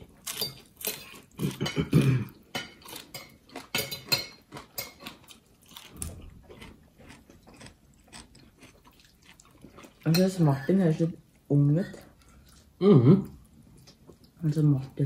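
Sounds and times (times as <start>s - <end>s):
cutlery and dishes clinking: 0.2s - 5.3s.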